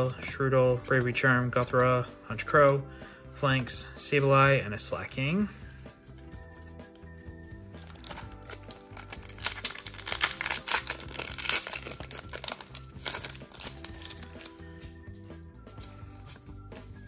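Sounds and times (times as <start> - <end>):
foil wrapper crinkling: 7.8 - 14.6.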